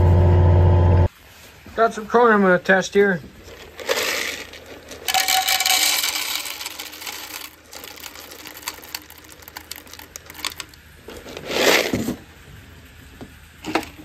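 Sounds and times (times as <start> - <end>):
corn kernels rattling into metal cup: 3.4 - 12.2.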